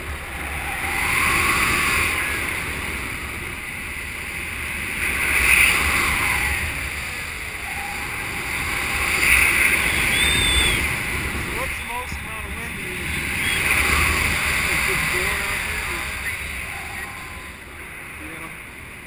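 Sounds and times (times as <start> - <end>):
wind on microphone: 0.0 - 19.0
faint short whistle: 9.9 - 10.9.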